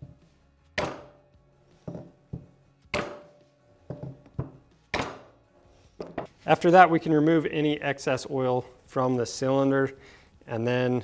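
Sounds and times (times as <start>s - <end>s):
plastic mallet strikes: 0.8s - 1.2s, 1.9s - 5.3s.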